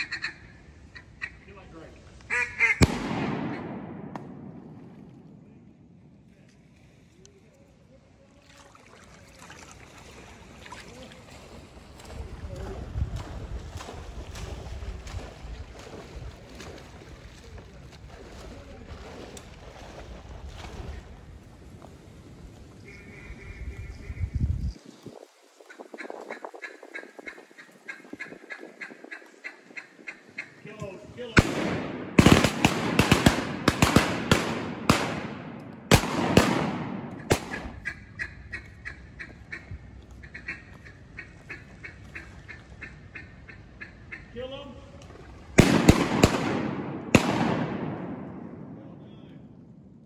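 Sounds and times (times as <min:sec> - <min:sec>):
shotgun shots echoing: 0:02.6 - 0:05.6, 0:31.4 - 0:37.8, 0:45.6 - 0:49.0
wind buffeting microphone: 0:10.0 - 0:50.0.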